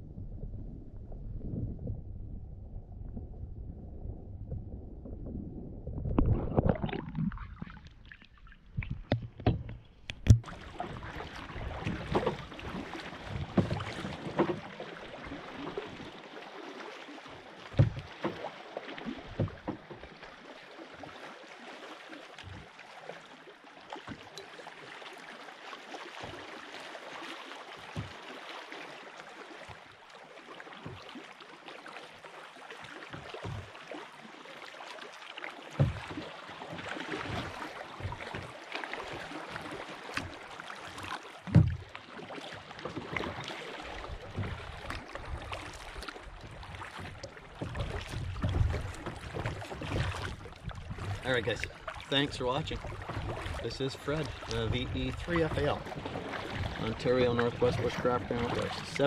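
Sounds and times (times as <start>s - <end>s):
water lapping around a kayak: 0.0s - 59.0s.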